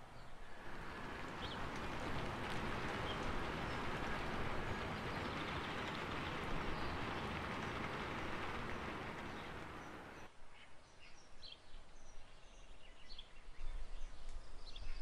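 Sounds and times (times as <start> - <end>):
steady rain hiss: 0.4 - 10.3.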